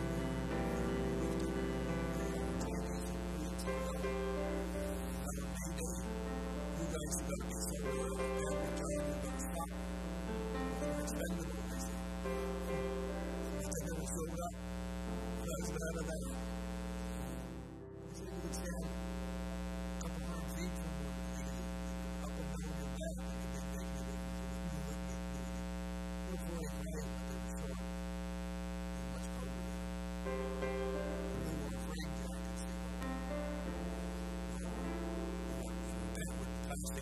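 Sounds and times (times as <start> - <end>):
faint music: 0.0 - 19.0, 30.3 - 37.0
electrical mains hum: 0.0 - 37.0.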